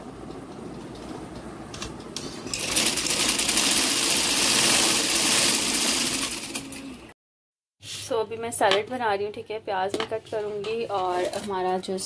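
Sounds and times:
sewing machine stitching: 2.5s - 6.9s.

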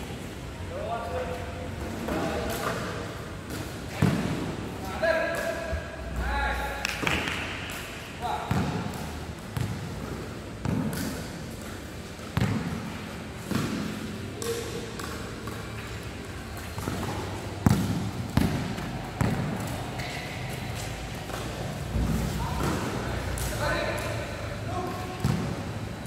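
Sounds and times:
basketball bouncing on hard court: 8.5s - 9.0s, 9.6s - 9.9s, 10.6s - 11.2s, 12.3s - 14.0s, 16.6s - 20.3s.

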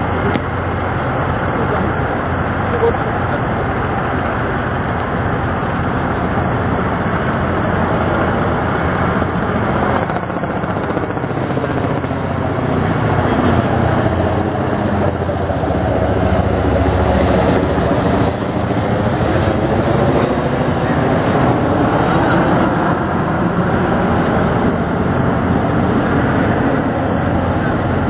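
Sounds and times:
helicopter rotor chop: 0.0s - 28.0s
outdoor din: 0.0s - 28.0s.

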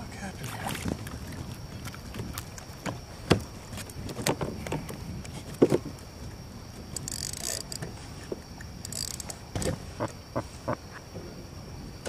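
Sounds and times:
fishing reel clicks and knocks: 6.9s - 7.9s, 8.8s - 9.7s.

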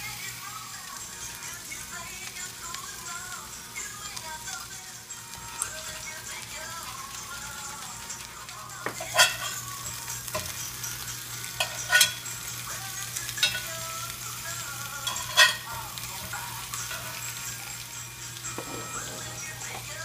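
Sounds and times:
patties sizzling in a pan: 0.0s - 20.0s
metal spatula scraping iron pan: 9.0s - 9.6s, 11.6s - 12.2s, 15.0s - 17.2s, 18.5s - 19.8s.

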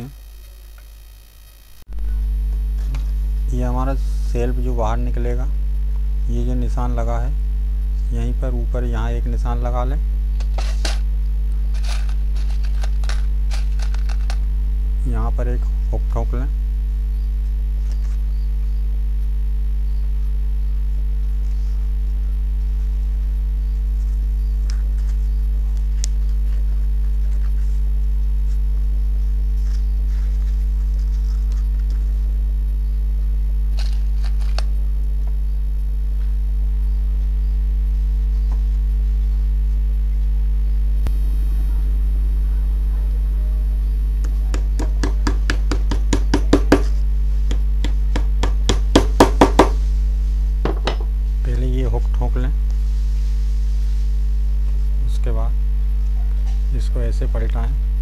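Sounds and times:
electrical mains hum: 0.0s - 58.0s
fabric and paper rustling: 11.7s - 14.4s, 29.5s - 32.2s.

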